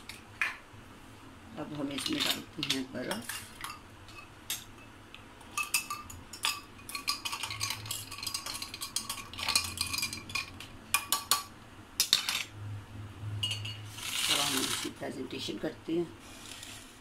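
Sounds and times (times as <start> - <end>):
spoon clinking ice in glass: 5.6 - 12.5, 13.4 - 14.8.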